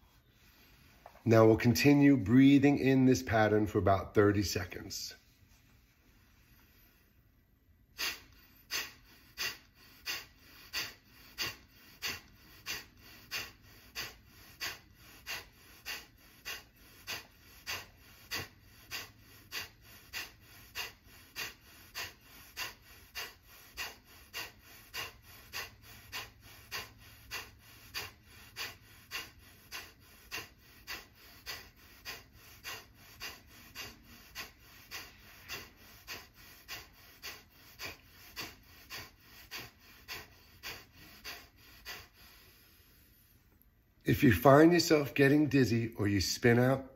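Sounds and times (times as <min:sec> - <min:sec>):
forceful nasal exhales: 0:07.9 - 0:43.3.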